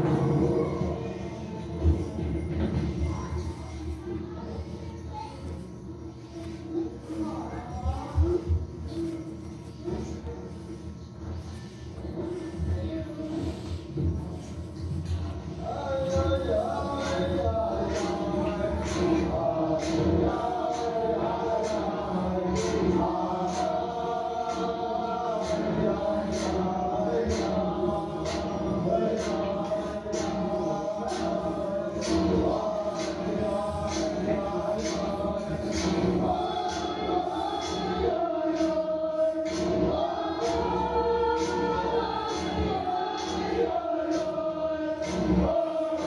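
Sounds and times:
choir singing held notes: 0:00.0 - 0:05.2, 0:06.0 - 0:46.0
voices chanting over steady beat: 0:00.0 - 0:46.0.

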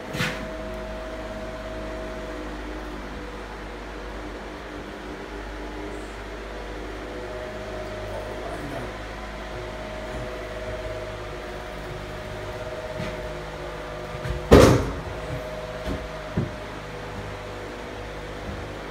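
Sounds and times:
faint steady tones: 0:00.0 - 0:18.9
steady hum: 0:00.0 - 0:18.9
knocks: 0:14.2 - 0:16.6.

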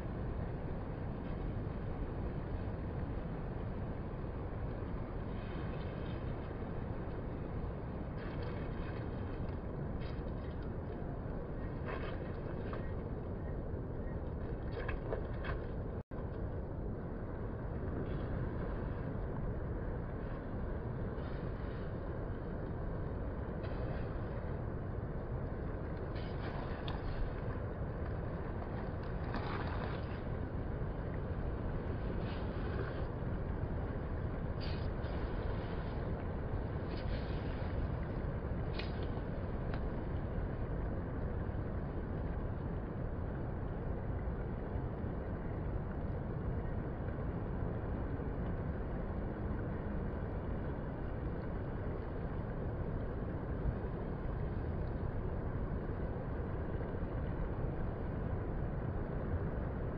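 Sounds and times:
waves breaking offshore: 0:00.0 - 0:59.9
hiss of surf wash: 0:34.4 - 0:38.4.

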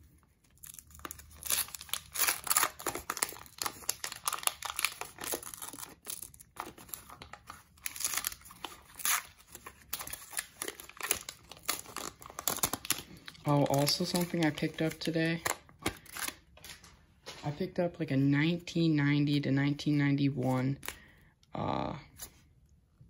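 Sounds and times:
wrapper crinkling and tearing: 0:00.0 - 0:17.0.

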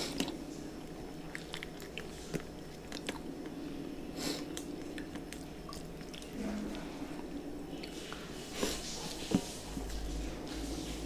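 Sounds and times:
person chewing and lip-smacking: 0:01.2 - 0:03.6.

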